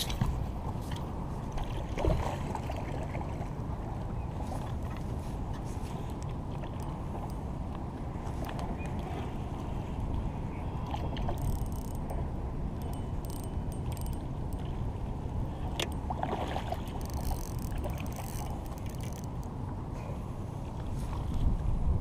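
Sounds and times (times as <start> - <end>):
water lapping: 0.0 - 12.2, 12.8 - 21.4
low wind rumble: 0.0 - 22.0
fishing reel clicking and whirring: 11.2 - 14.6, 16.9 - 19.5.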